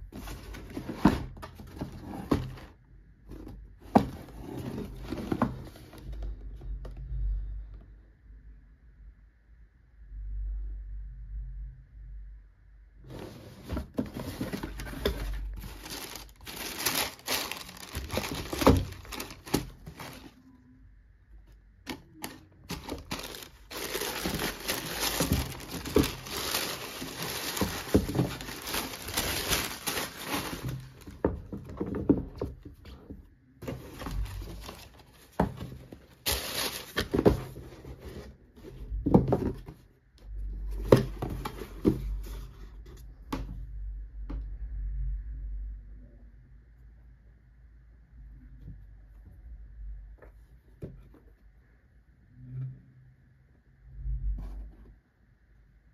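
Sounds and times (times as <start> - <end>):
tissue paper crinkling: 14.2 - 20.4, 22.7 - 31.2, 36.2 - 37.2.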